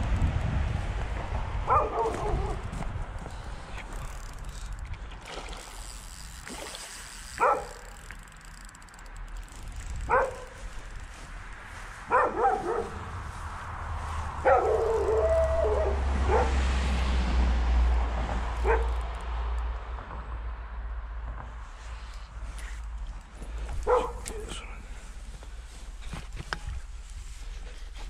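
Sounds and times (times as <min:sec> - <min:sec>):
dog barking: 0:01.7 - 0:02.6, 0:07.4 - 0:07.9, 0:10.1 - 0:10.6, 0:12.1 - 0:13.1, 0:14.4 - 0:16.6, 0:18.6 - 0:18.9, 0:23.8 - 0:24.4
dog yelping: 0:14.4 - 0:16.6.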